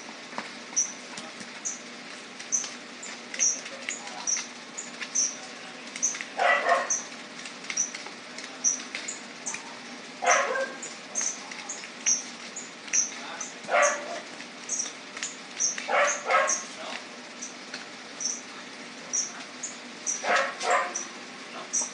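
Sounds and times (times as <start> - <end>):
dog barking: 6.4 - 7.0, 10.2 - 10.9, 13.7 - 14.3, 15.9 - 16.7, 20.2 - 21.8.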